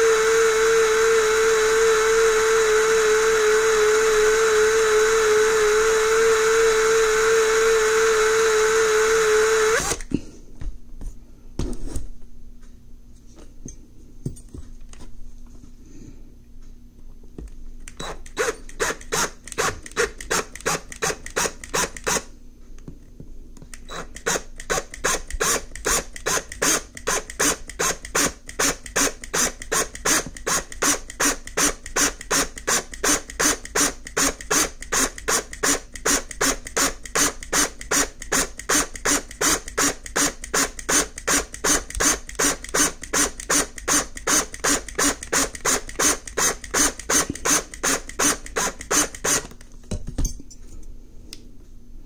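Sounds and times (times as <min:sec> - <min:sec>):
power drill cutting metal: 0:00.0 - 0:10.1, 0:18.0 - 0:22.3, 0:23.9 - 0:49.5
faint steady hum: 0:00.0 - 0:52.0.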